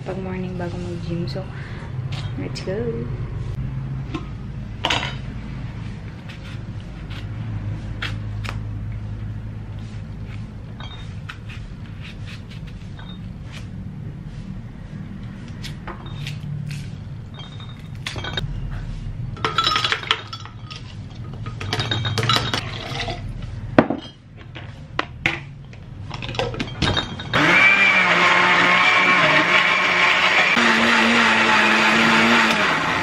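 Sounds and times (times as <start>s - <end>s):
electric blender crushing ice: 27.3s - 33.0s.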